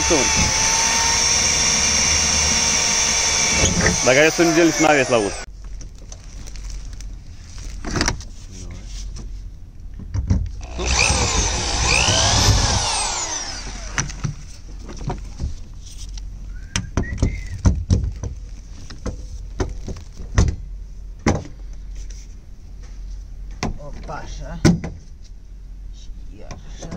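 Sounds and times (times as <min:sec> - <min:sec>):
scraping and whirring: 0:00.0 - 0:05.5, 0:10.6 - 0:14.7.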